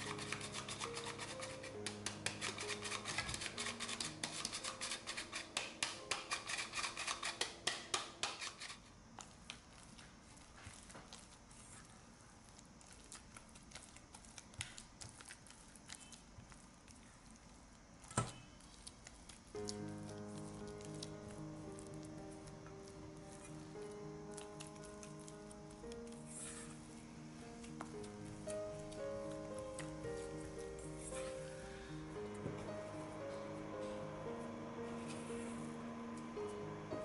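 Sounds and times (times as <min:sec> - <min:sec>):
spatula scraping and squelching dough: 0:00.0 - 0:21.1, 0:26.0 - 0:26.8.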